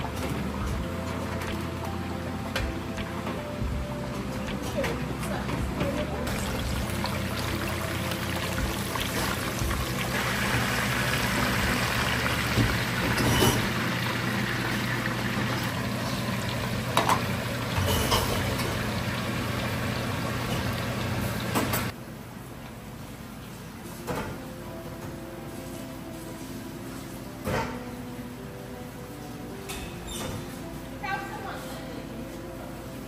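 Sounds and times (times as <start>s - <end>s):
chicken sizzling in hot oil: 6.3s - 21.9s.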